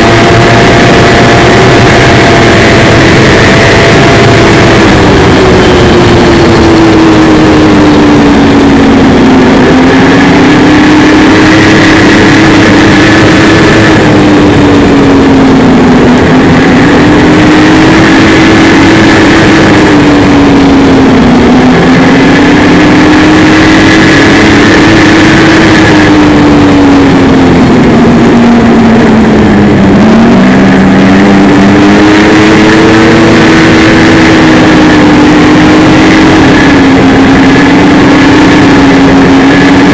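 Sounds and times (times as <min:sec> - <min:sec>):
rushing noise: 0:00.0 - 0:39.9
snowmobile engine running: 0:00.0 - 0:39.9.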